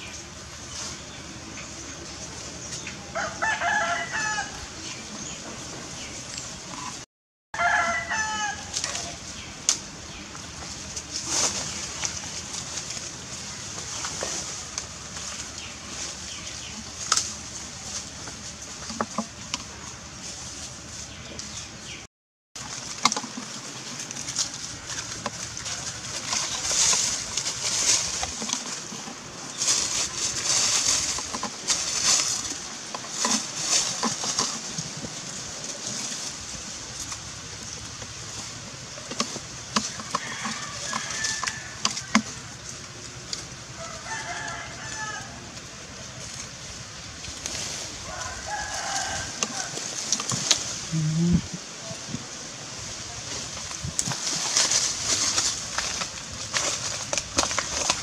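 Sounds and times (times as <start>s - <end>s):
small clicks and rustles: 22.6s - 50.8s, 53.3s - 58.0s.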